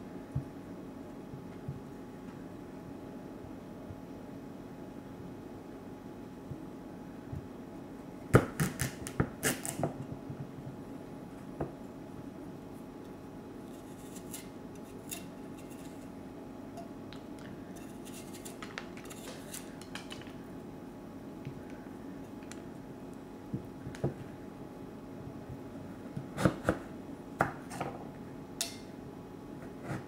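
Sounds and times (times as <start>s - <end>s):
knife scraping squash skin: 13.7s - 16.1s, 17.7s - 19.8s.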